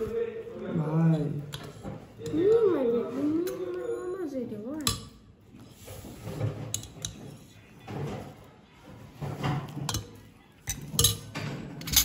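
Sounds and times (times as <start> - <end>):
faint background talk: 0.0 - 12.0
spoons clinking on bowls: 9.7 - 12.0.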